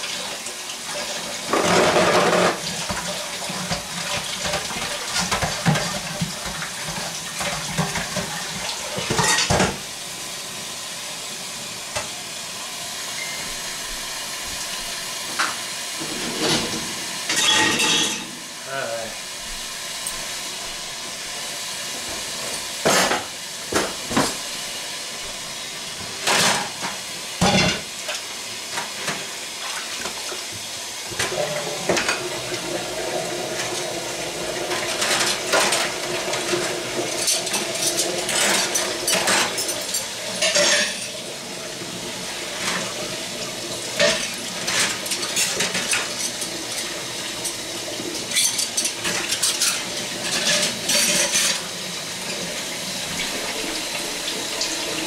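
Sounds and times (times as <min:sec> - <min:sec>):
tap water running into sink: 0:00.0 - 0:12.4, 0:13.2 - 0:55.0
dishes clattering against steel sink: 0:01.5 - 0:09.8, 0:15.4 - 0:18.4, 0:22.8 - 0:24.4, 0:26.2 - 0:27.9, 0:34.7 - 0:41.2, 0:44.0 - 0:51.6.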